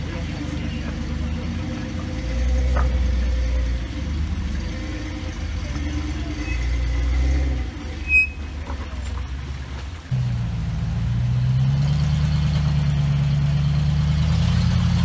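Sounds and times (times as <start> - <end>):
jeep engine under load: 0.0 - 15.0
sharp high squeak: 5.8 - 8.7.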